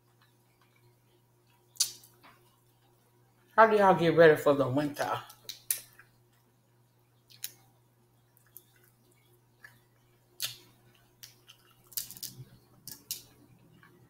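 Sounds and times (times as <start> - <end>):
shrimp shell cracking: 11.2 - 13.4.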